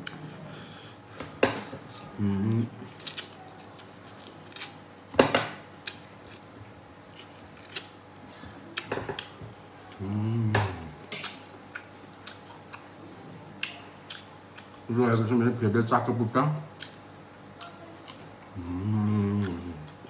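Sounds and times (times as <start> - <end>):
person humming: 2.0 - 2.8, 9.9 - 11.0, 18.6 - 20.0.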